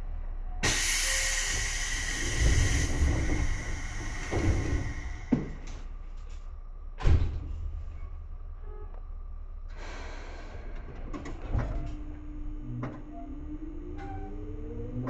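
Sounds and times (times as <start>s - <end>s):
train humming: 0.0s - 15.0s
air hissing: 0.6s - 5.6s
train door thud: 0.6s - 6.0s, 7.0s - 8.1s.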